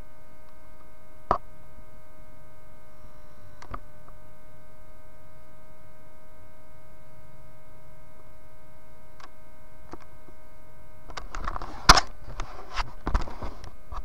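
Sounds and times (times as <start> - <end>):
thin electrical whine: 0.0 - 14.0
camera handling rustling: 11.1 - 13.7.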